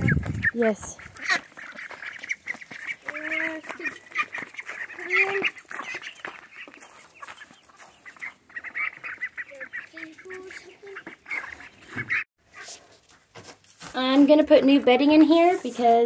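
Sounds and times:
chickens clucking: 0.0 - 12.8
ducks calling: 0.0 - 12.8.

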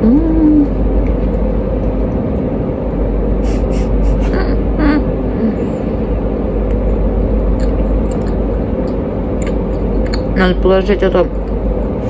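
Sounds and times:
woman humming: 0.0 - 0.8, 3.5 - 5.8
low rumble: 0.0 - 12.0
woman chewing food: 7.5 - 10.4
mouth clicks: 7.6 - 10.4.

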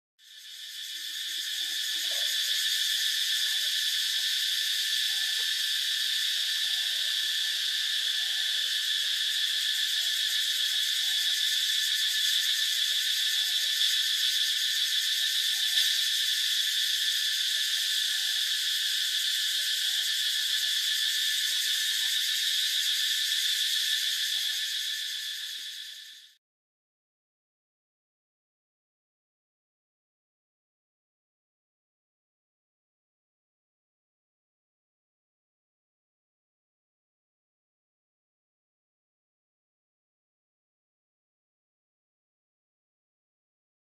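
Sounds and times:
high-pitched insect chorus: 0.2 - 26.4.

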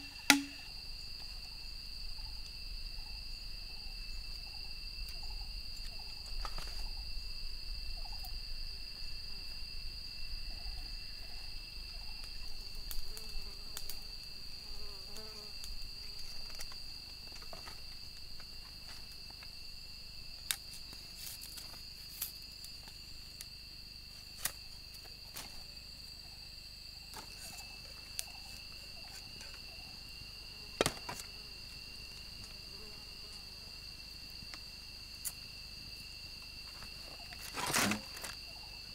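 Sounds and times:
insects droning: 0.0 - 38.9
knife cutting bamboo stick: 0.2 - 0.6.

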